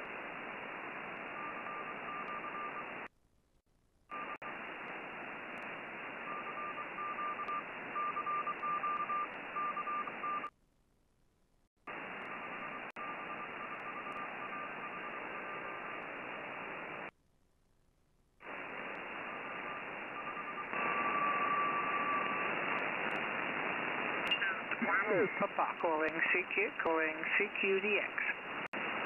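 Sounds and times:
morse code tone: 0:06.3 - 0:10.5, 0:19.3 - 0:22.6
radio band hiss: 0:11.9 - 0:17.1, 0:18.4 - 0:29.0.

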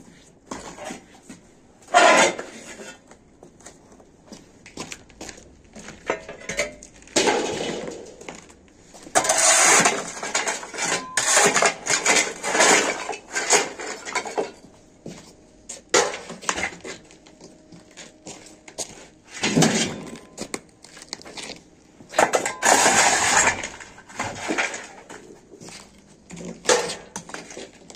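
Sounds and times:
rubble scraping on concrete: 0:05.8 - 0:14.6, 0:22.2 - 0:27.9.

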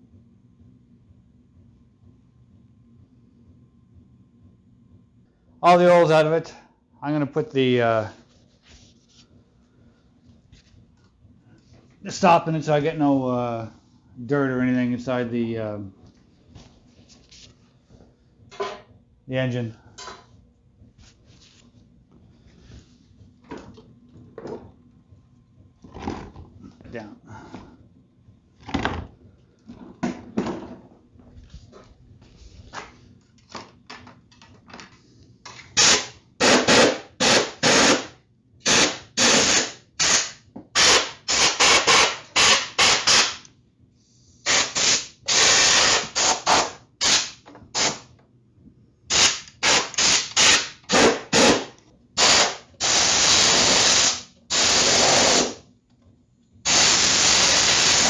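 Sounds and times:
compressed air blasts: 0:35.7 - 0:43.4, 0:44.4 - 0:48.1, 0:49.1 - 0:55.6, 0:56.6 - 0:58.0.

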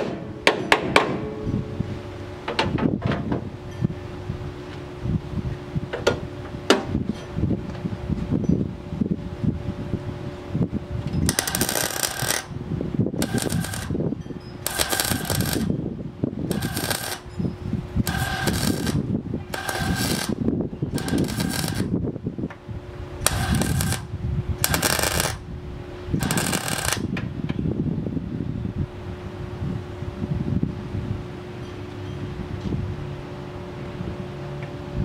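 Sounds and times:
steady hum: 0:00.0 - 0:31.6
welding arc crackling: 0:11.3 - 0:12.5, 0:13.2 - 0:14.0, 0:14.6 - 0:15.7, 0:16.5 - 0:17.3, 0:18.0 - 0:21.9, 0:23.2 - 0:25.4, 0:26.2 - 0:27.1.

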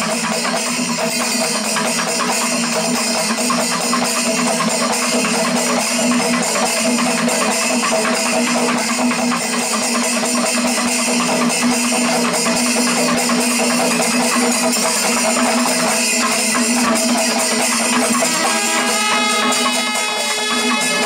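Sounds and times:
cymbals: 0:00.0 - 0:21.0
drums playing fast rhythm: 0:00.0 - 0:21.0
horns holding notes: 0:18.2 - 0:21.0.

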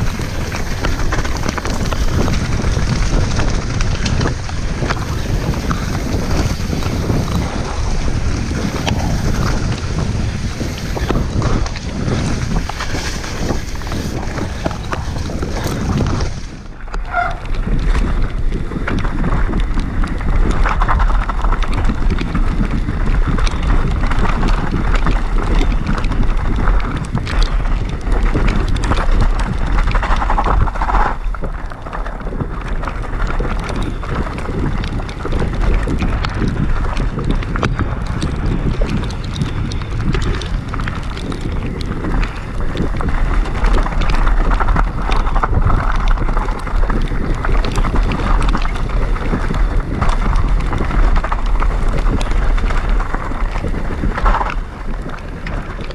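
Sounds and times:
bike rattling and knocking: 0:00.0 - 0:55.9
bike tyres rolling on wet dirt: 0:00.0 - 0:55.9
wind buffeting microphone: 0:00.0 - 0:55.9.

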